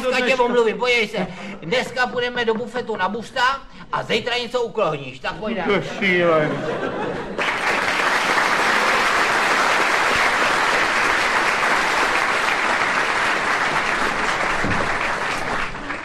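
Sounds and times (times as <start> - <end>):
audience applauding: 6.8 - 16.0.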